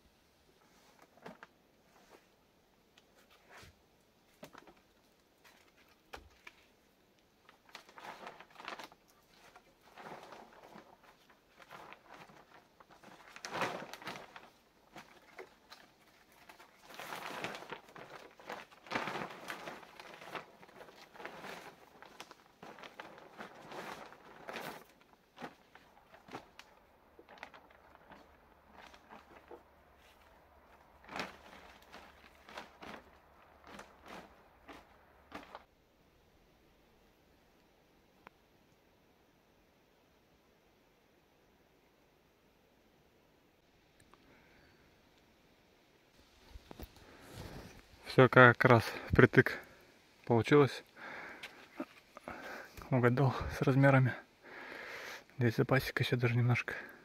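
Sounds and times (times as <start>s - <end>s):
plastic sheeting rustling: 3.0s - 35.7s, 46.2s - 57.0s.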